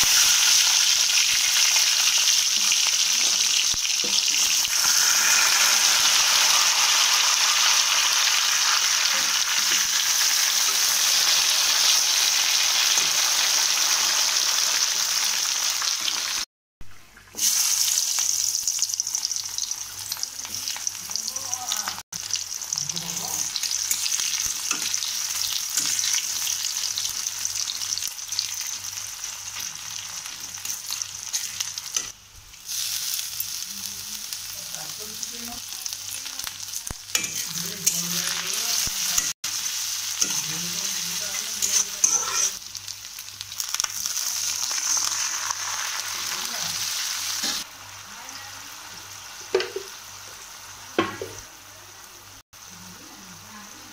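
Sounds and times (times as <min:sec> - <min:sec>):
fish sizzling in hot oil: 0:00.0 - 0:16.5, 0:17.3 - 0:53.9
spatula stirring: 0:40.2 - 0:42.6.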